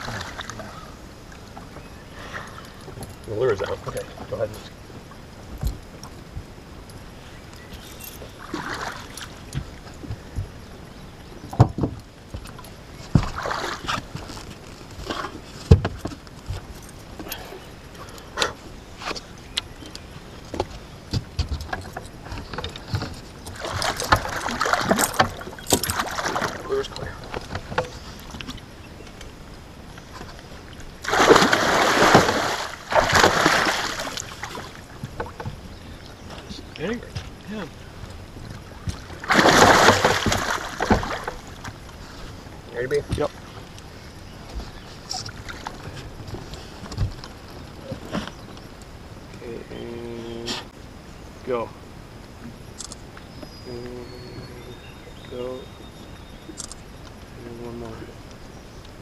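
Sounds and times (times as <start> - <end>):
water splashing against boat: 0.0 - 50.8
fish thrashing and splashing: 8.2 - 9.6, 13.2 - 14.2, 21.7 - 27.8, 30.9 - 35.6, 38.6 - 41.8
knocks on boat: 11.5 - 12.5, 13.1 - 13.4, 15.7 - 16.7, 38.4 - 41.4.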